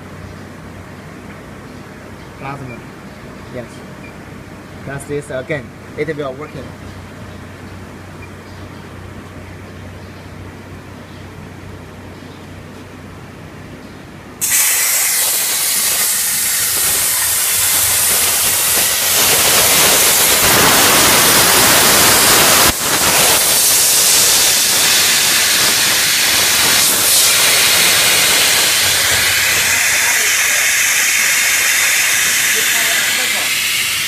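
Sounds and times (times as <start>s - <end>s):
plasma torch hissing: 14.4s - 34.0s.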